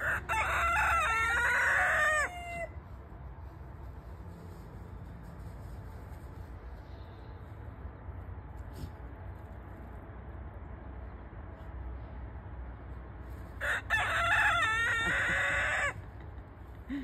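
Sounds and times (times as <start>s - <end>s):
rooster crowing: 0.0s - 2.8s, 13.6s - 16.1s.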